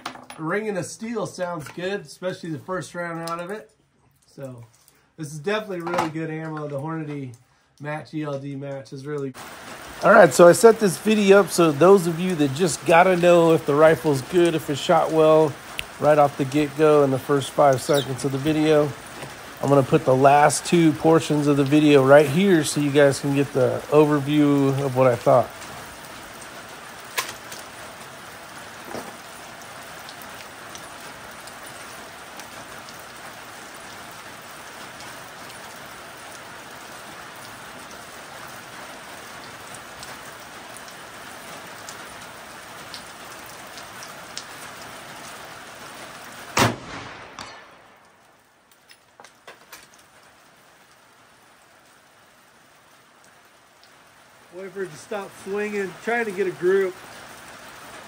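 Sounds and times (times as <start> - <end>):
steady rain falling: 0.0 - 58.0
rifle shot: 46.6 - 48.3.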